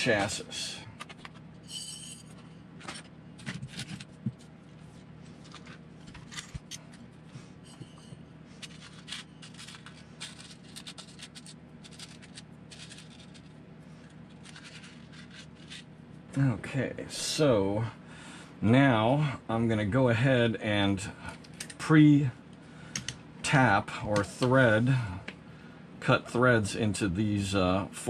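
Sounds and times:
faint steady hum: 0.0s - 28.0s
hands handling small parts: 1.0s - 7.1s, 7.7s - 15.9s.

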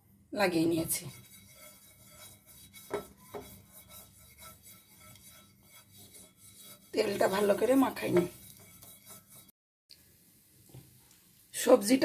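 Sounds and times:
potato scraping frying pan: 0.6s - 9.5s.

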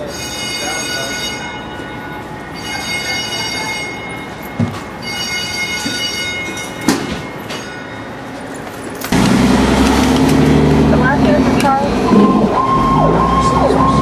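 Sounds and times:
diesel engine running: 9.0s - 14.0s.

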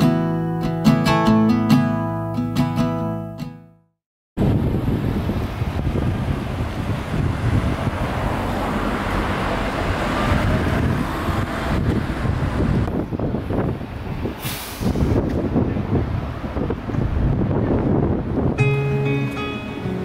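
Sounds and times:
road traffic rumble: 4.4s - 20.0s.

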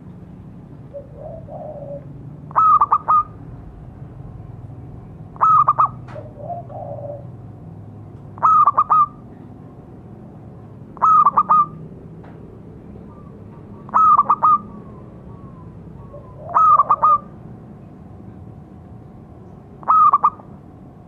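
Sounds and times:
dove cooing: 0.9s - 3.4s, 5.4s - 7.4s, 8.4s - 9.2s, 11.0s - 11.8s, 13.0s - 17.4s, 19.8s - 20.5s.

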